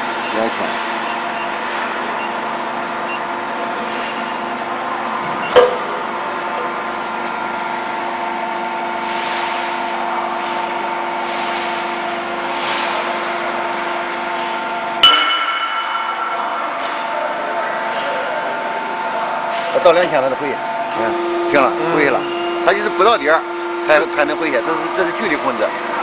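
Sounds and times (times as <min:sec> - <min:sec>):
hydraulic pump motor humming: 0:00.0 - 0:26.0
sharp metallic clanks: 0:15.0 - 0:17.2.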